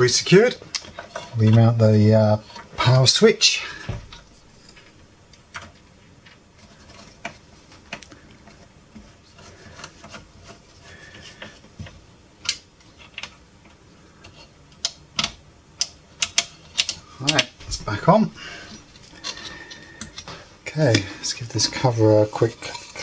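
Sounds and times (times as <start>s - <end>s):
metal scraping: 17.2s - 23.0s.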